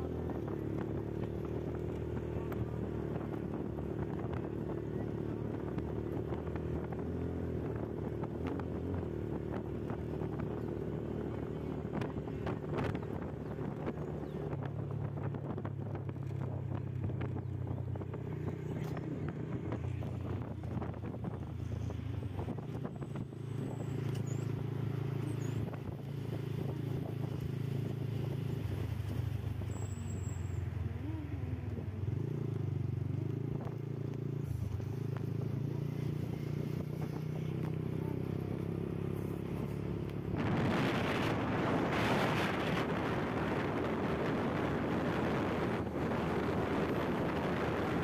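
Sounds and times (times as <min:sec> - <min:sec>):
motorcycle engine running: 0:00.0 - 0:48.0
wind on microphone: 0:40.2 - 0:48.0.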